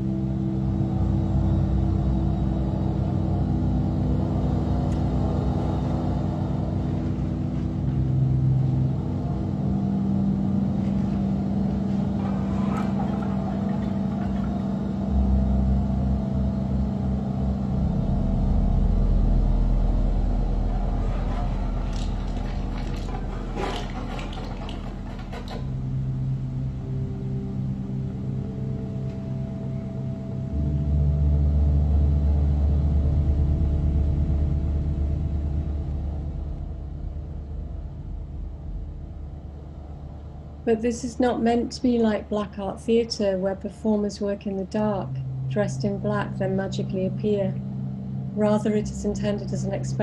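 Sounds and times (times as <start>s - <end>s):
deep drone music: 0.0s - 50.0s
crackles and clicks: 19.6s - 26.4s.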